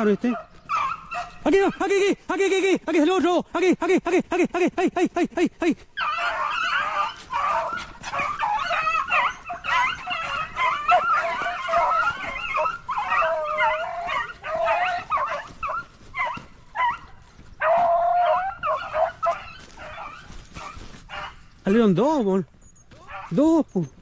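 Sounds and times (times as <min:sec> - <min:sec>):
dogs yelping and baying: 0:00.0 - 0:01.8, 0:05.9 - 0:21.9, 0:22.6 - 0:24.0.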